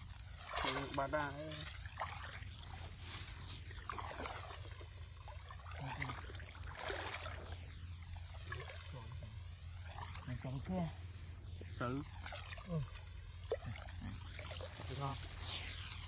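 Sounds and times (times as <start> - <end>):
footsteps wading through water: 0.0 - 7.6, 8.2 - 9.1, 9.8 - 10.5, 12.0 - 14.9
steady low rumble: 0.0 - 16.0.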